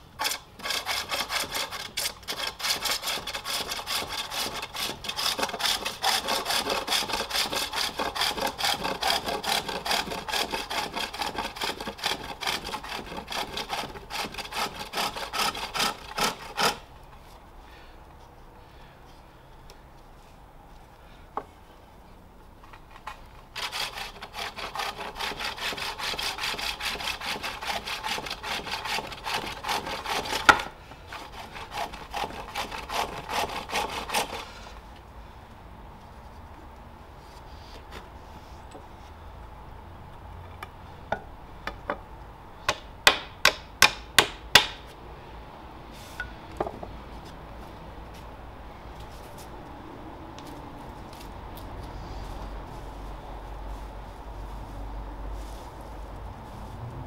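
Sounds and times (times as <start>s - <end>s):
lathe tool rasping wood: 0.2s - 16.8s, 23.6s - 34.4s.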